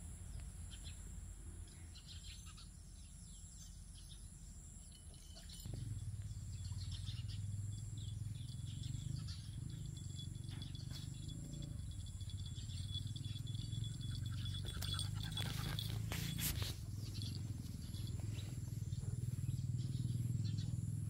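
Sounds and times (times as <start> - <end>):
faint bird chirps: 0.3 - 21.0
high insect drone: 4.3 - 18.5.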